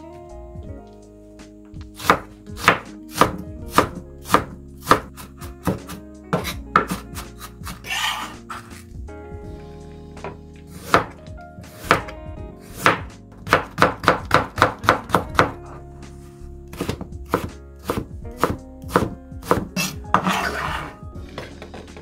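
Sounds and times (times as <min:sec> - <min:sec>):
knife chopping carrot on board: 0:02.0 - 0:08.2, 0:10.8 - 0:12.1, 0:12.8 - 0:15.6, 0:16.7 - 0:20.8
knife blade scraping board: 0:05.9 - 0:08.8, 0:19.8 - 0:21.0.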